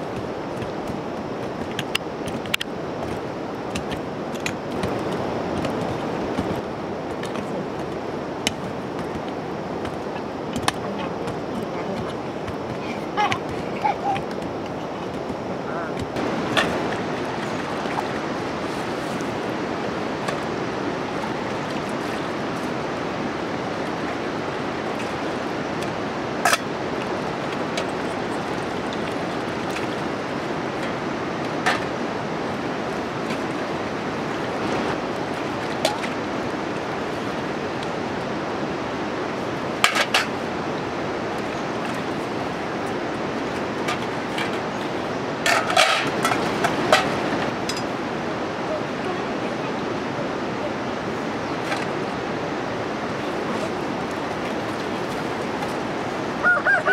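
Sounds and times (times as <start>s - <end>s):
steady rushing noise: 0.0s - 56.9s.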